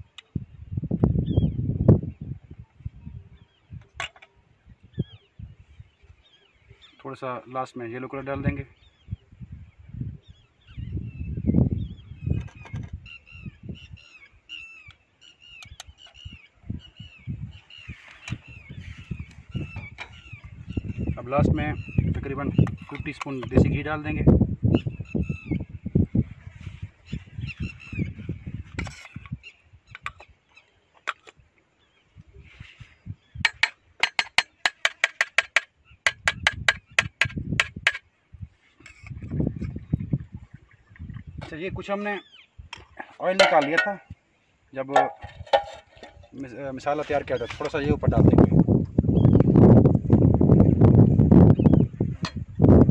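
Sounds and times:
birds calling: 1.1 - 49.7, 50.6 - 52.6
bird calling: 10.2 - 23.6
metal spoon clinking on cookware: 43.4 - 44.0, 45.0 - 46.1.

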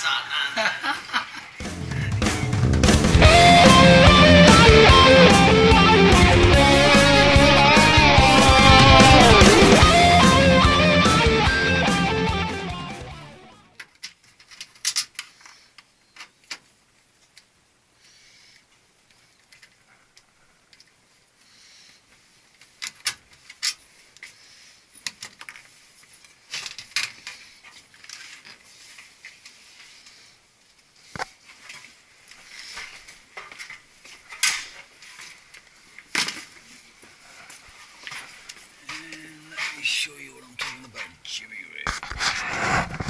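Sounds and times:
soft rustling: 21.0 - 39.9.

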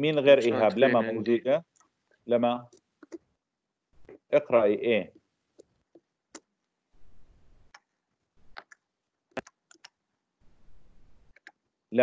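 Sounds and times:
faint low noise: 0.0 - 12.0
faint clicks and ticks: 1.6 - 3.4, 7.6 - 10.2, 11.2 - 11.8.

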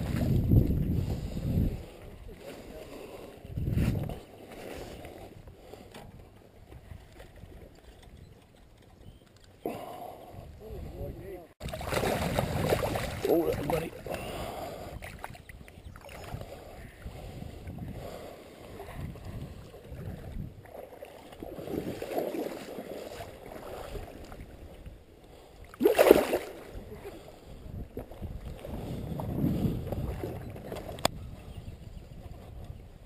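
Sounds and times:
loud water splash: 11.6 - 13.3, 25.8 - 26.6
creek water sloshing: 11.6 - 14.4, 18.6 - 24.9, 25.6 - 27.0.

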